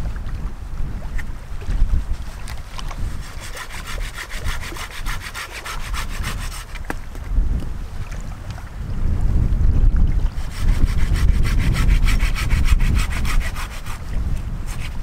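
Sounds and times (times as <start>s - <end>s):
wind buffeting microphone: 0.0s - 15.0s
hand saw cutting branch: 2.3s - 7.0s, 10.4s - 15.0s.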